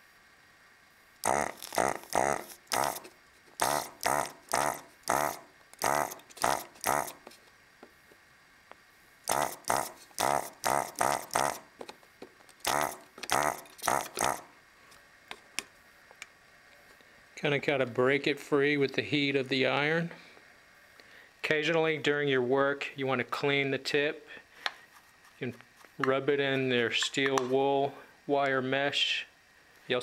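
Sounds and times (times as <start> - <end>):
vacuum pump buzzing in bursts: 1.2 - 7.4, 9.2 - 11.9, 12.6 - 14.6.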